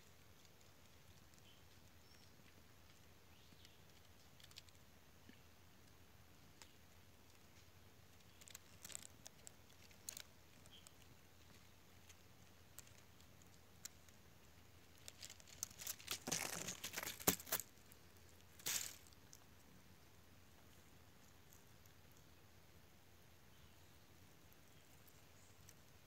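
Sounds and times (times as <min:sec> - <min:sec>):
dry leaves and twigs crunching: 0:06.6 - 0:14.2, 0:14.8 - 0:19.4.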